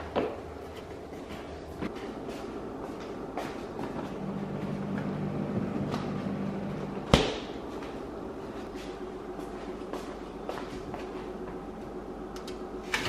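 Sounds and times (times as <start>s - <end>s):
refrigerator hum: 0.0s - 13.0s
refrigerator door slamming: 7.0s - 7.6s.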